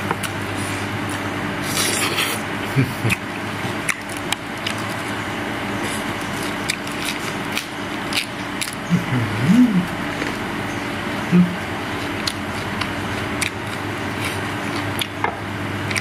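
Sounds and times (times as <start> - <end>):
steady low hum: 0.0 - 16.0
chewing: 3.1 - 15.2.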